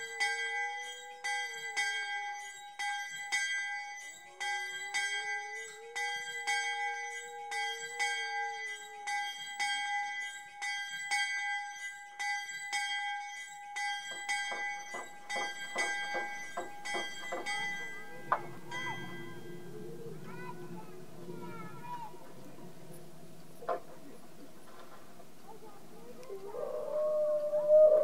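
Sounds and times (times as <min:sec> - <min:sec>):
bell ringing: 0:00.0 - 0:20.0.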